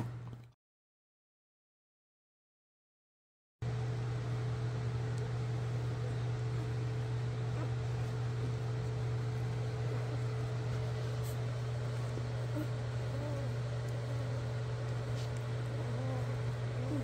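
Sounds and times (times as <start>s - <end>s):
steady low hum: 3.6s - 17.0s.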